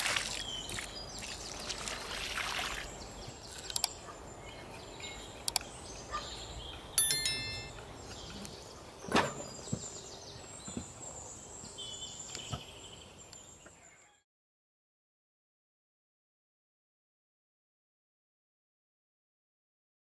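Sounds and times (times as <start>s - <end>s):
high ringing tone: 7.0s - 7.8s.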